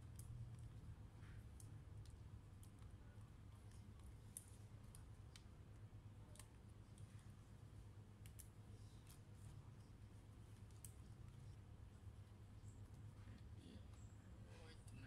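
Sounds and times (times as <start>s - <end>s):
small clicks and taps on laptop: 8.2s - 9.2s, 10.5s - 11.5s.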